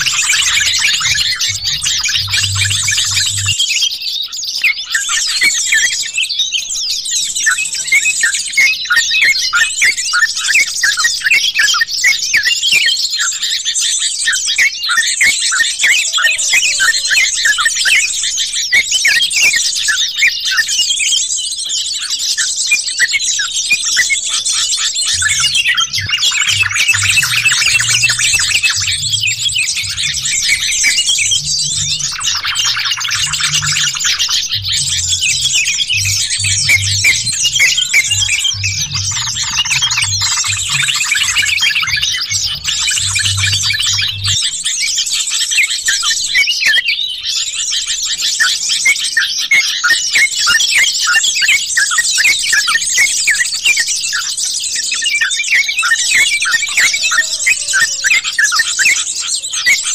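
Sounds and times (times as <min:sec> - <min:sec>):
low pulsing throb: 0:00.0 - 0:03.6, 0:25.2 - 0:44.4
birds chirping and trilling: 0:00.0 - 0:59.9.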